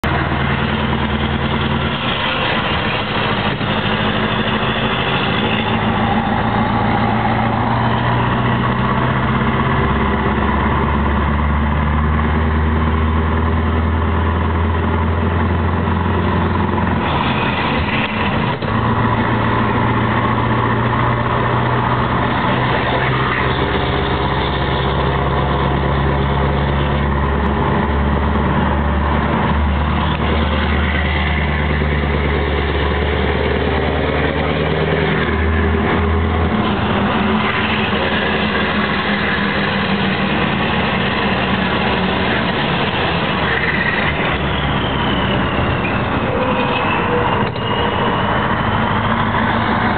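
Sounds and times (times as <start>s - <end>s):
truck diesel engine running: 0.0s - 49.9s.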